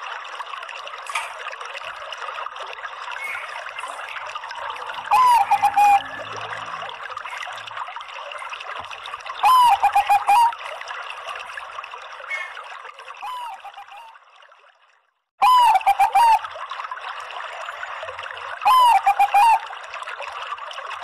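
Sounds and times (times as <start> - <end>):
water trickling: 0.0 - 21.0
dove cooing: 5.0 - 6.3, 9.4 - 10.6, 15.4 - 16.4, 18.7 - 19.7.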